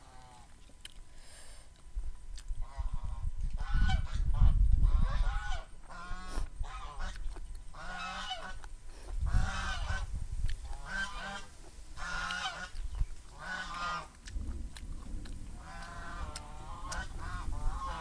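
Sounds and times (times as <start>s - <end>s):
geese honking: 7.8s - 8.6s, 9.3s - 10.1s, 10.7s - 14.1s, 15.6s - 18.0s.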